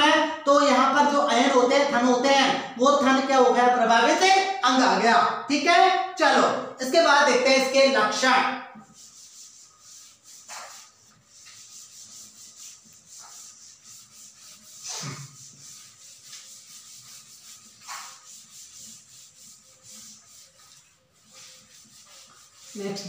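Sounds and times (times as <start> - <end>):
duster wiping a chalkboard: 7.7 - 23.0.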